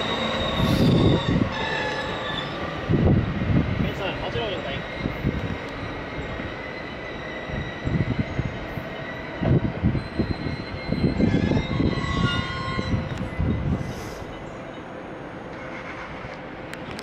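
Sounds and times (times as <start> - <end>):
high squealing tones: 0.0 - 2.7, 4.8 - 13.6
electric train high whine: 0.0 - 17.0
train wheels rumbling: 0.0 - 17.0.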